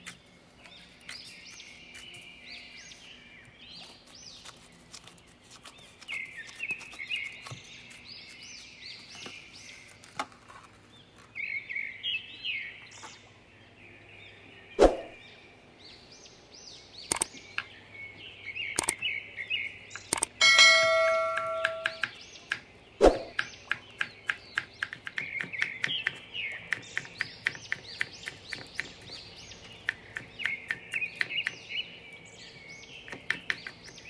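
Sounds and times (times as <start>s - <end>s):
small bird chirping and singing: 0.0s - 34.0s
light clicks: 17.1s - 17.7s, 18.8s - 19.0s.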